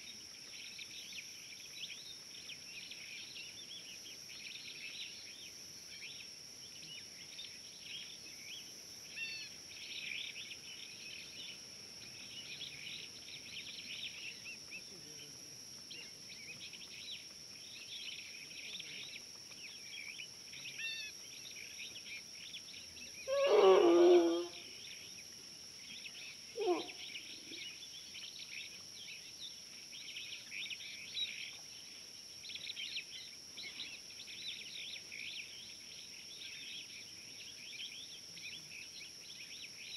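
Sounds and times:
animal call falling in pitch: 23.3 - 24.6.

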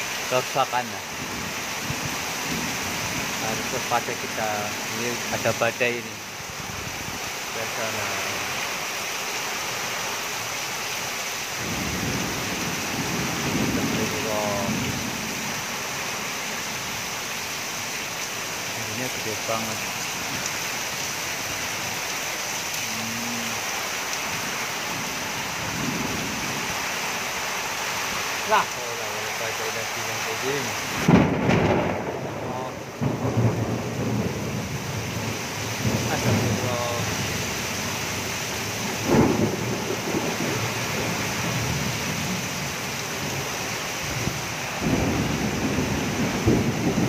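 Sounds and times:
heavy rain pouring: 0.0 - 47.0
thunder rumble: 1.0 - 5.7, 11.6 - 16.0, 30.9 - 47.0
strong wind: 1.0 - 8.8, 11.6 - 19.1, 30.6 - 47.0.

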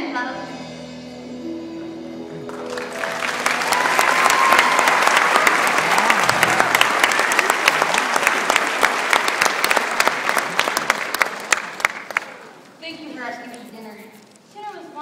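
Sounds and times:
audience applauding: 2.5 - 12.8.

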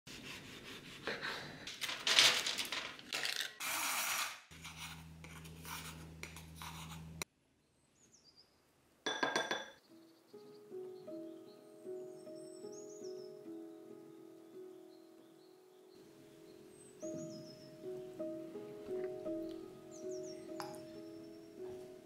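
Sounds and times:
wooden spoon scraping metal cup: 3.6 - 7.2
clink against glass bowl: 9.1 - 9.8.

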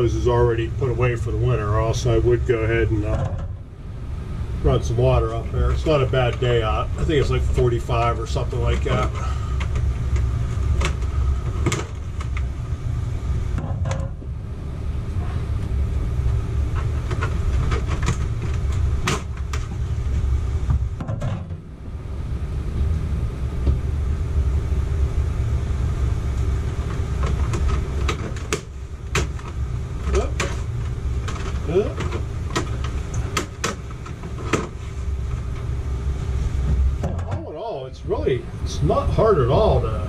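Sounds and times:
steady low rumble: 0.0 - 40.0.

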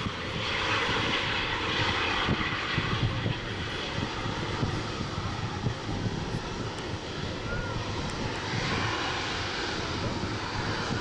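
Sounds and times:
jet engines rumbling: 0.0 - 11.0.

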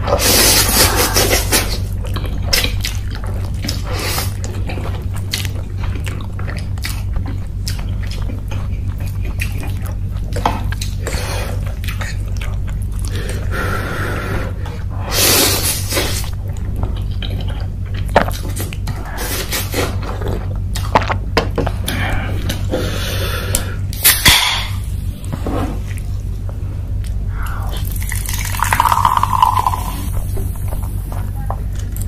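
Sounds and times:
steady low hum: 0.0 - 32.0
chewing noodles: 0.2 - 23.0, 27.0 - 32.0.

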